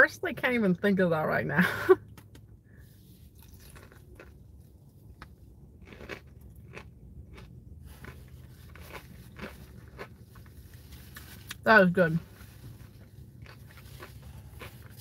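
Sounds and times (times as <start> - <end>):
chewing crispy fried chicken: 3.3 - 11.6, 12.4 - 15.0.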